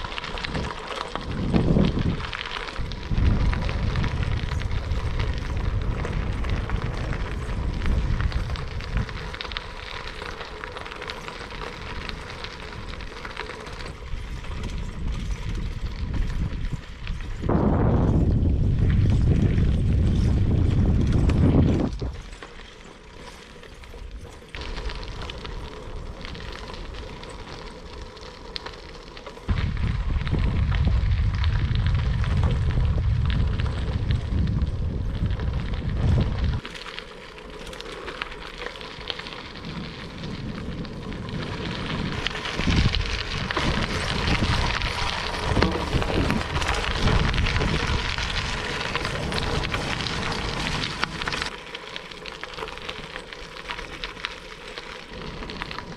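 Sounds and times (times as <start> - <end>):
wind rumble on microphone: 0.0 - 22.4, 29.5 - 36.7, 39.0 - 51.5
bike tyres crunching on gravel: 0.0 - 55.9.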